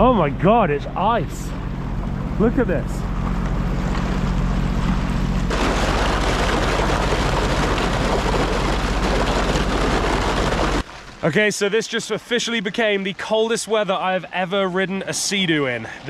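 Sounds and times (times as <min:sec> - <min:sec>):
jet ski engine running: 0:00.0 - 0:10.8
thin ice breaking along hull: 0:03.8 - 0:11.4.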